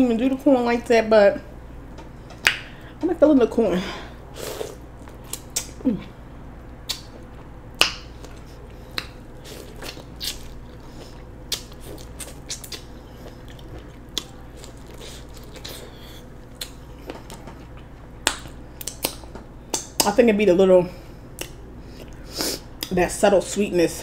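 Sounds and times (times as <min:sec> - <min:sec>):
chewing corn on the cob: 0:08.2 - 0:19.2.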